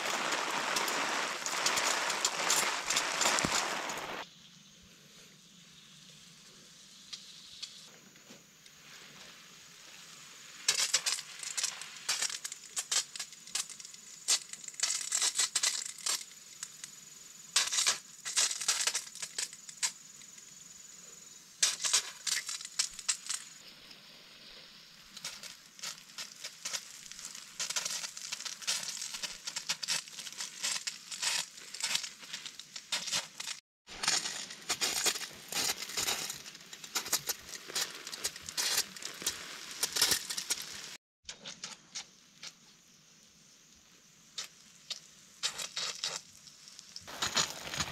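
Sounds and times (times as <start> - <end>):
leaves and twigs crunching underfoot: 0.0 - 4.2, 21.6 - 41.8, 44.4 - 47.9.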